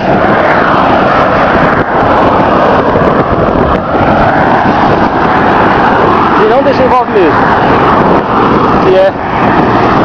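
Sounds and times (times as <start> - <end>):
cars passing: 0.0 - 10.0
wind rushing on microphone: 0.0 - 10.0.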